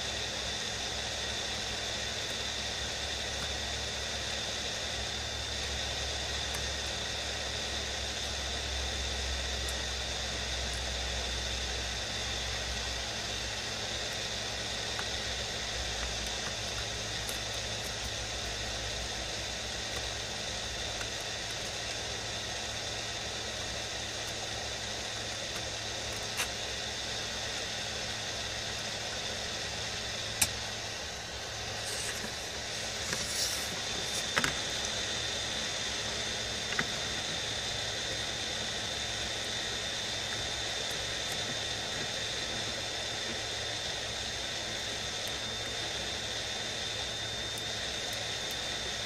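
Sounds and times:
heat gun blowing hot air: 0:31.3 - 0:34.9.

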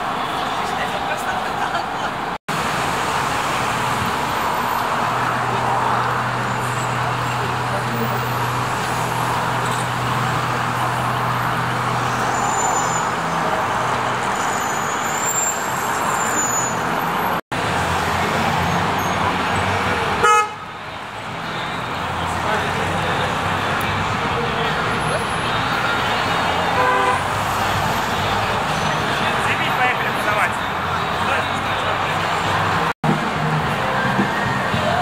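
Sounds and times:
crowd noise: 0:00.0 - 0:02.4, 0:16.9 - 0:35.0
cars passing: 0:00.0 - 0:35.0
car horn toot: 0:20.2 - 0:20.7, 0:26.7 - 0:27.3.

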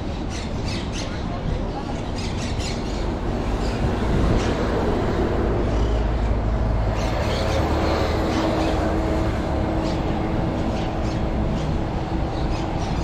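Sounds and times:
outdoor street noise: 0:00.0 - 0:13.0
vehicle engine rumble: 0:02.8 - 0:13.0.

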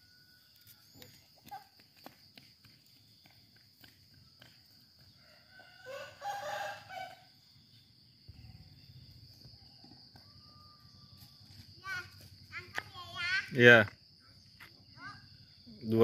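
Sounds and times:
insects droning: 0:00.0 - 0:16.0
rooster crowing: 0:05.1 - 0:07.3.

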